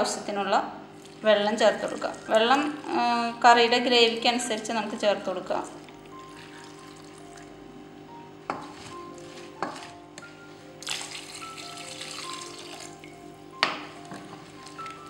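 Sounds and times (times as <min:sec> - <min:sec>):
water pouring into pot: 0:01.0 - 0:03.2, 0:06.1 - 0:07.4, 0:10.8 - 0:13.2.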